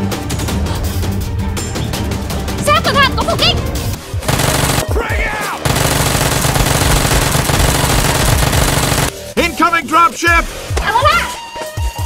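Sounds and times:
machine gun automatic fire: 0:04.2 - 0:04.9, 0:05.6 - 0:09.1.

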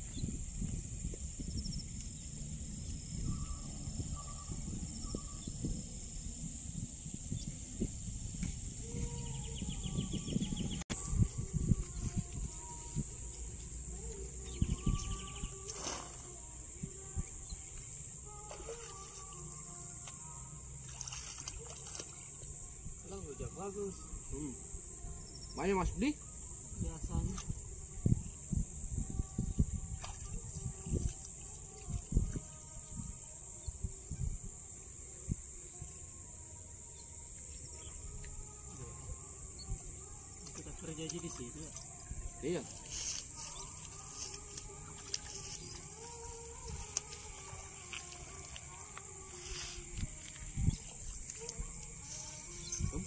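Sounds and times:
insects hissing: 0:00.0 - 0:53.0
bird trill: 0:14.1 - 0:16.1, 0:50.6 - 0:53.0.

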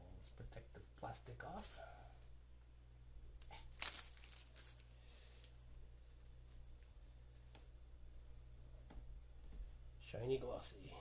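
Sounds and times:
plastic film ripping: 0:03.4 - 0:05.0
plastic rustling and crinkling: 0:03.5 - 0:07.0.

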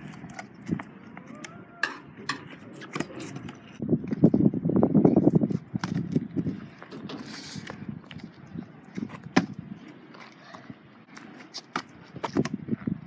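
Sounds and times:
scooter wheels rumbling on asphalt: 0:00.0 - 0:13.0.

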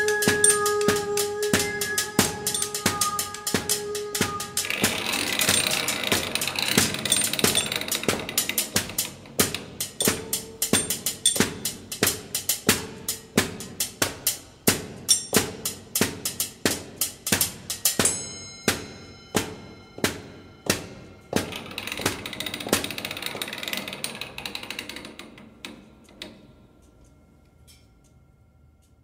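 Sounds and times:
short ringing tones: 0:00.0 - 0:07.9
machine-like percussion beat: 0:00.0 - 0:24.2.

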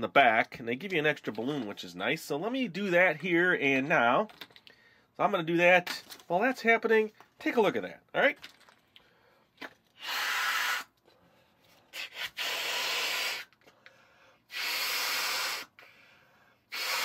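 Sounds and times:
person blowing up balloon: 0:10.0 - 0:11.0, 0:11.9 - 0:13.6, 0:14.5 - 0:15.9, 0:16.7 - 0:17.0.

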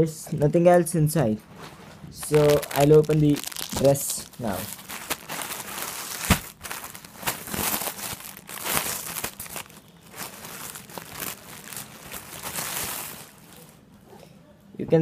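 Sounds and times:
plastic packet crinkling: 0:02.2 - 0:13.8.

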